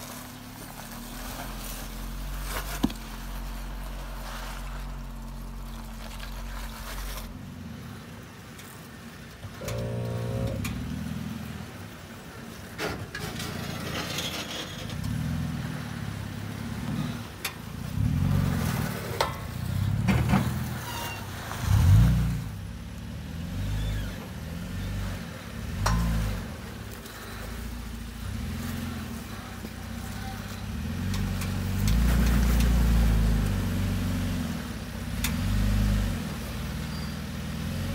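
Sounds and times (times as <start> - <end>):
truck engine revving: 13.2 - 37.9.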